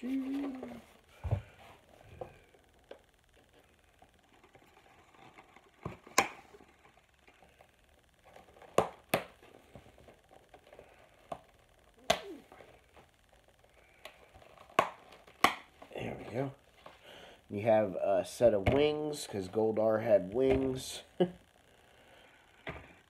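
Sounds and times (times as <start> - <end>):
soft rustling of packaging: 0.0 - 18.0
plastic packaging clicks and snaps: 14.0 - 15.8.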